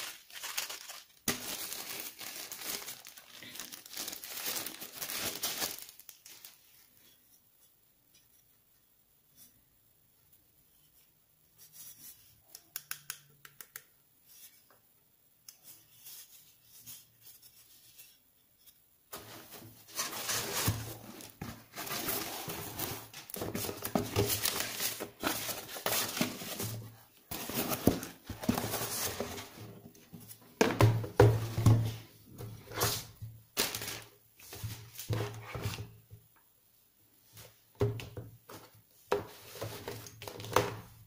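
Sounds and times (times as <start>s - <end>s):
foam and packaging scraping: 0.0s - 6.6s, 19.1s - 29.7s.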